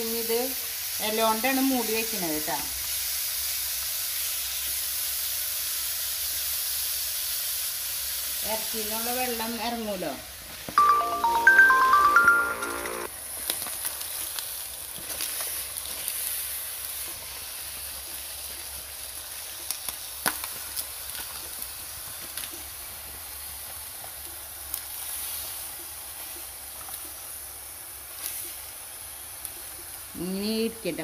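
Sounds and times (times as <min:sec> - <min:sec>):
pot of curry hissing: 0:00.0 - 0:09.5, 0:13.2 - 0:30.2
leaves crackling and rustling: 0:13.3 - 0:18.2.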